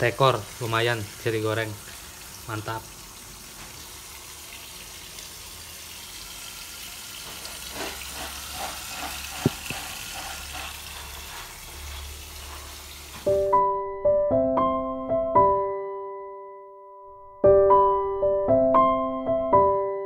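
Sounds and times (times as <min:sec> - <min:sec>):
tap water running into a sink: 0:00.0 - 0:13.3.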